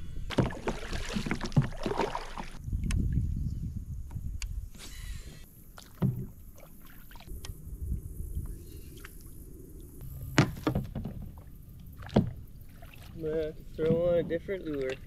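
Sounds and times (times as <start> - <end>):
low steady rumble: 7.3 - 13.8
gear knocking against boat: 13.7 - 15.0.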